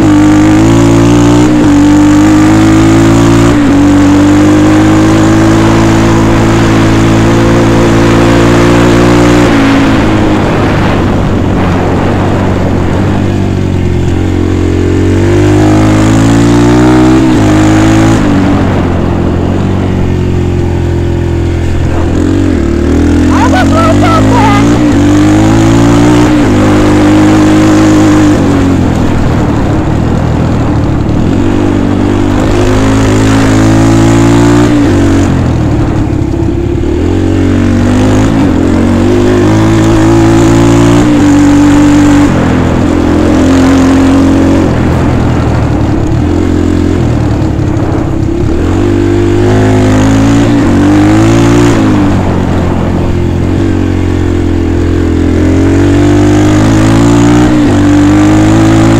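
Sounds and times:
dirt bike engine revving: 0:14.1 - 0:18.9, 0:20.0 - 0:29.8, 0:31.3 - 0:35.9, 0:36.8 - 0:45.8, 0:46.4 - 0:58.9.

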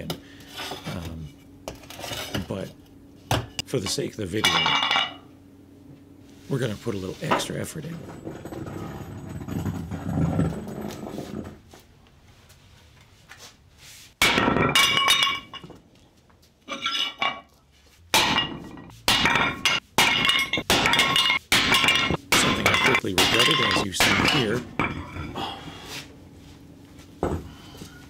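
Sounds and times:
sledgehammer clanging on metal plate: 0:18.2 - 0:25.3.

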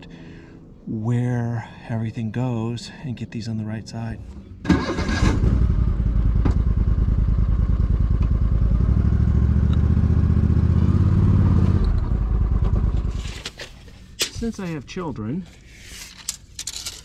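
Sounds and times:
vehicle engine running: 0:05.0 - 0:13.4.

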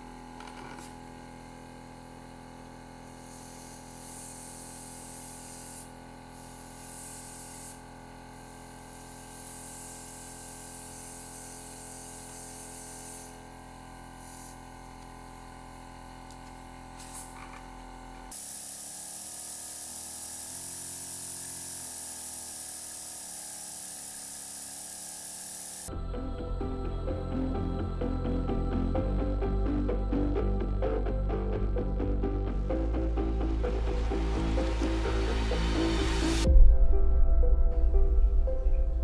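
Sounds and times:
compressor motor humming: 0:00.0 - 0:36.6
airbrush spraying hiss: 0:00.6 - 0:25.9, 0:32.6 - 0:36.5.

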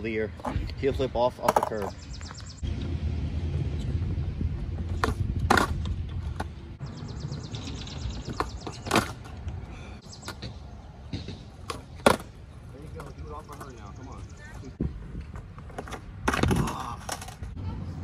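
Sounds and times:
skateboard wheels rolling on concrete: 0:00.0 - 0:18.0
skateboard deck clacking: 0:04.8 - 0:06.6, 0:08.3 - 0:09.5, 0:11.2 - 0:13.8.

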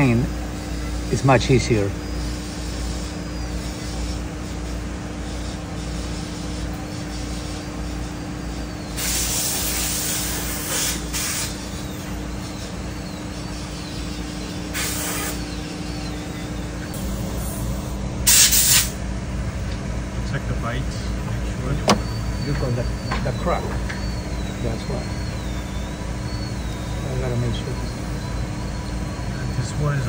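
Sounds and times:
workshop equipment humming: 0:00.0 - 0:30.0
short hisses: 0:09.0 - 0:11.6, 0:14.7 - 0:15.5, 0:18.3 - 0:19.0.

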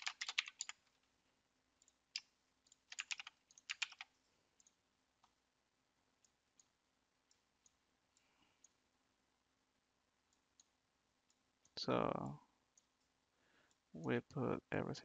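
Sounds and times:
keyboard typing: 0:00.0 - 0:01.0, 0:01.8 - 0:05.4.

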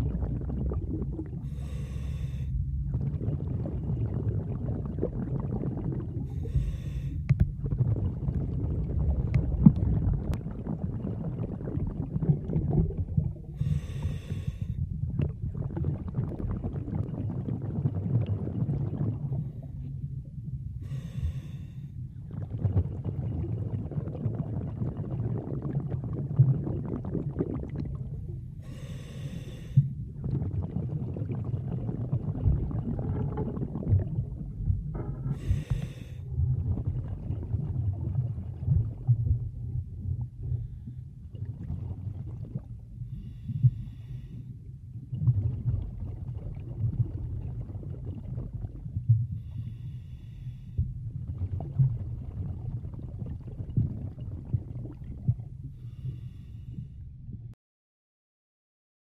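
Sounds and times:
underwater rumble of moving water: 0:00.0 - 0:57.6
swimmer breathing: 0:01.4 - 0:02.6, 0:06.2 - 0:07.3, 0:13.6 - 0:14.8, 0:20.8 - 0:22.0, 0:28.6 - 0:30.0, 0:35.2 - 0:36.3, 0:43.1 - 0:44.6, 0:49.4 - 0:50.9, 0:55.7 - 0:57.0.

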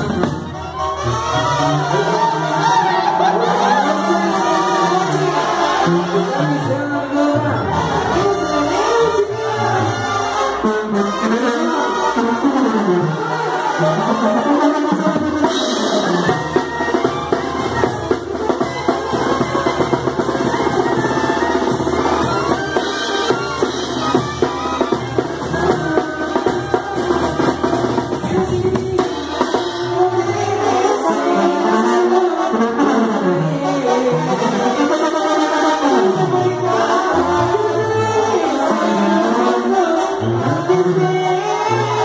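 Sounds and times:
brass band music: 0:00.0 - 0:42.0.

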